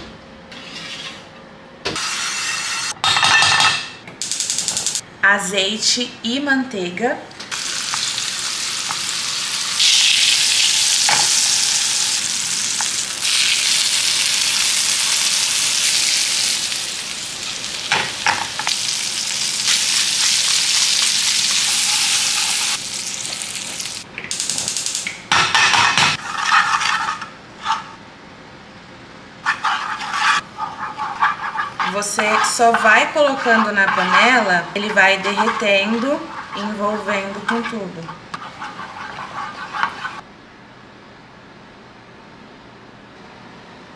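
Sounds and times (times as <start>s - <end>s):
wooden spoon scraping a pan: 0.5s - 1.2s, 26.2s - 27.9s, 29.4s - 40.2s
meat sizzling in a frying pan: 7.5s - 25.1s.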